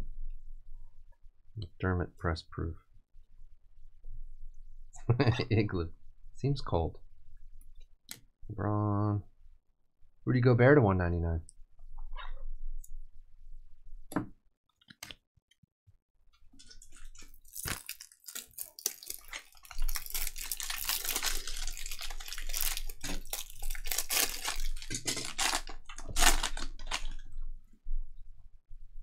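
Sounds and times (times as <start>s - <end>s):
foil wrapper tearing and crinkling: 16.8s - 27.2s.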